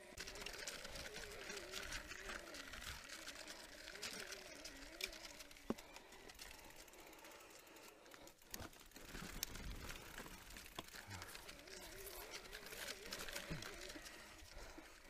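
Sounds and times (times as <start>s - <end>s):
bike rattling and ratcheting: 0.0s - 15.0s.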